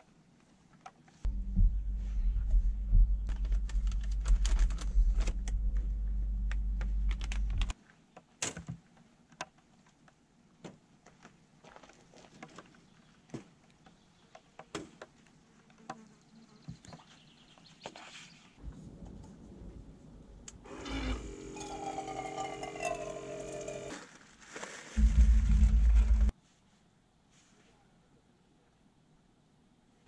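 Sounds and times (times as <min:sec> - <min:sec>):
steady low hum: 0:01.3 - 0:07.7, 0:25.0 - 0:26.3
sharp clicks and handling noise: 0:03.3 - 0:05.8, 0:06.4 - 0:10.2.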